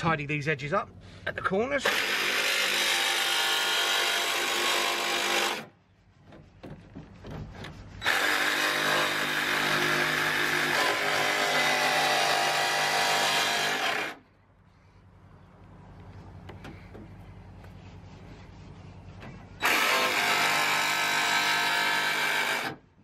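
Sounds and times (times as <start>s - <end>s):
jigsaw cutting sheet metal: 1.8s - 5.7s, 8.0s - 14.2s, 19.6s - 22.8s
small knocks: 6.2s - 7.8s.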